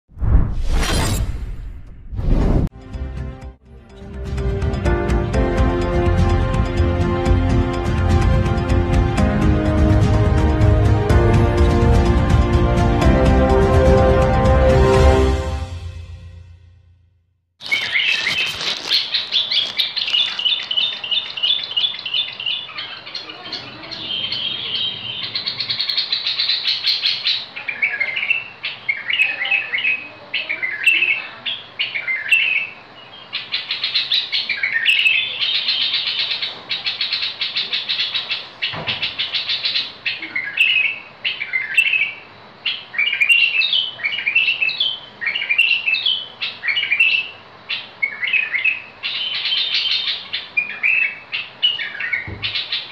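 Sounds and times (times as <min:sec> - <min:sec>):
bird singing warbling phrases: 0:17.6 - 0:52.9.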